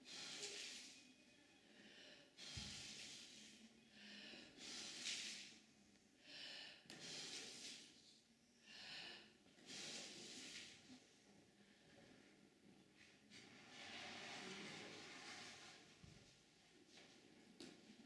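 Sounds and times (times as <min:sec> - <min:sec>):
heavy breathing: 0:01.6 - 0:05.6.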